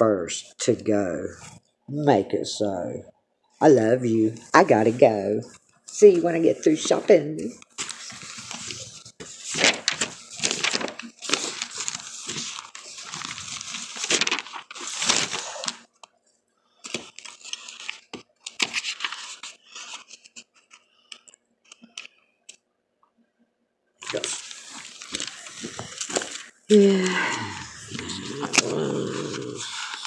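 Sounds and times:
crackling hissing static: 0:03.6 - 0:16.1, 0:24.0 - 0:30.0.

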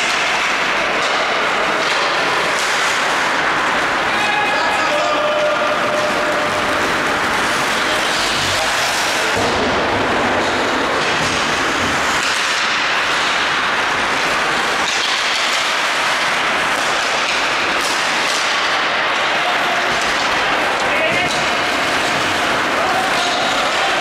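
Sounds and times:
hall noise: 0:00.0 - 0:24.0
skates hissing on ice: 0:06.1 - 0:19.4.

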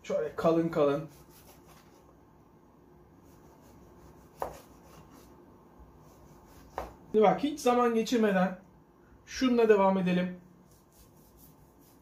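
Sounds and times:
knife slicing sausage: 0:01.1 - 0:02.0, 0:03.2 - 0:05.4, 0:06.0 - 0:07.1.

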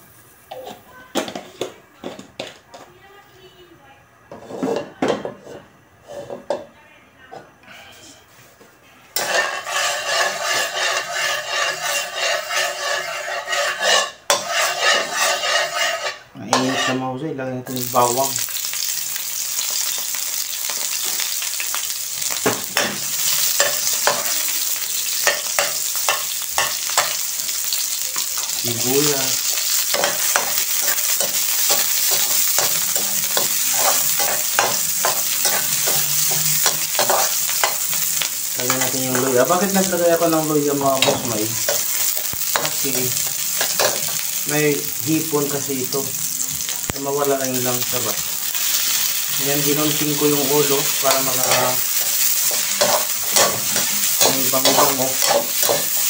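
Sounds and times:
food sizzling in hot oil: 0:00.0 - 0:02.5, 0:09.2 - 0:56.0
metal spatula scraping a wok: 0:04.3 - 0:06.6, 0:09.2 - 0:17.2, 0:22.8 - 0:44.5, 0:47.6 - 0:56.0.

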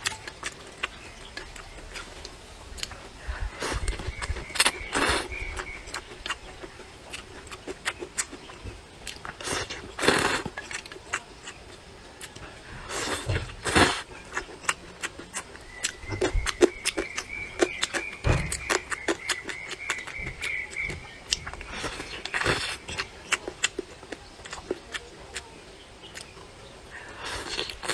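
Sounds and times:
wet chewing and lip smacks: 0:00.0 - 0:26.5, 0:27.3 - 0:27.9
person slurping noodles: 0:09.4 - 0:10.5, 0:12.8 - 0:14.1.

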